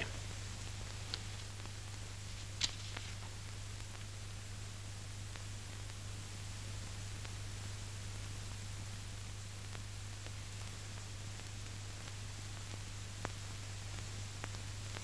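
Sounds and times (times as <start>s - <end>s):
narration: 0.0s - 0.5s
crackle clicks: 0.0s - 4.2s
film soundtrack hiss and hum: 0.0s - 15.0s.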